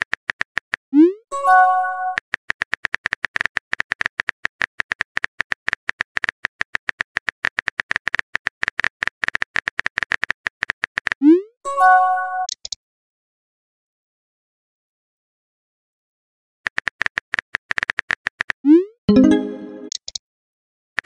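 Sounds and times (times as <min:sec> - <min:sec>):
phone keyboard typing clicks: 0:02.1 - 0:11.2, 0:12.5 - 0:12.8.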